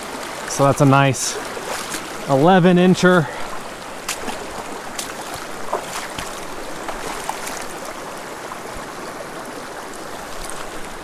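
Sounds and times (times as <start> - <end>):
stream running over rocks: 0.0 - 11.0.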